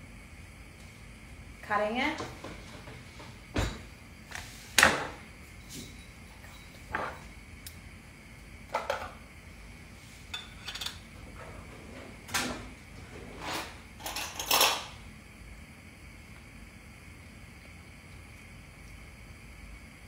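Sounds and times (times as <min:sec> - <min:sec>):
dishes knocking and clinking: 0:02.2 - 0:03.9, 0:04.8 - 0:07.3, 0:08.7 - 0:09.2, 0:10.3 - 0:11.4.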